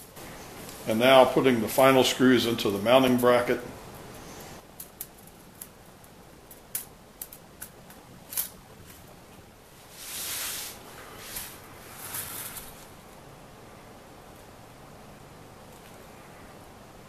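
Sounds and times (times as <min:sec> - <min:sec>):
scraping and rustling: 0:08.3 - 0:13.1.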